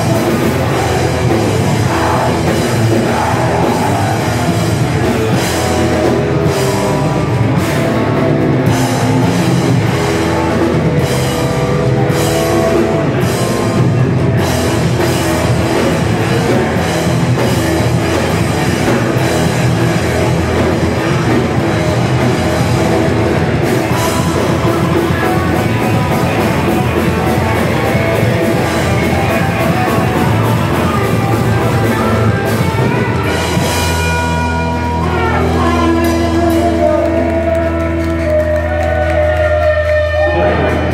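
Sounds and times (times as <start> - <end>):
distorted electric guitars: 0.0 - 40.9
driving drum kit: 0.0 - 40.9.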